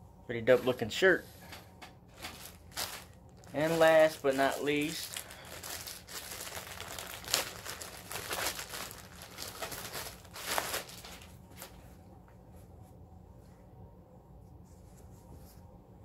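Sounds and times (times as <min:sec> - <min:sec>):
plastic bag crinkling: 0:02.1 - 0:11.8.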